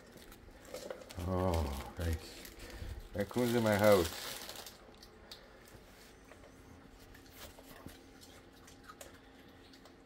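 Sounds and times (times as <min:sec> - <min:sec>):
faint steady hum: 0:00.0 - 0:10.0
raccoon eating crumbs: 0:07.0 - 0:10.0.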